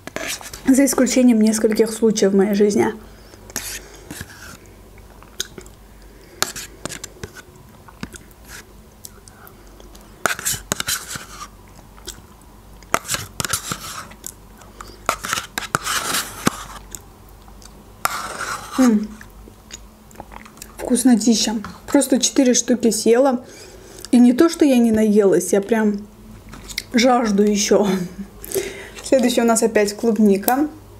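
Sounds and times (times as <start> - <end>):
spoon scraping yogurt cup: 0.0 - 1.1, 3.5 - 4.6, 6.4 - 8.6, 10.2 - 11.5, 12.9 - 17.0, 18.0 - 19.1
wet mouth and lip sounds: 5.0 - 5.8, 19.2 - 20.9.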